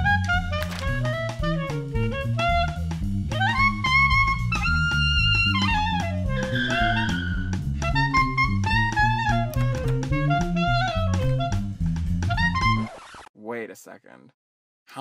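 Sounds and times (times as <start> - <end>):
low bass notes: 0.0 - 12.9
woodwind melody: 0.0 - 12.9.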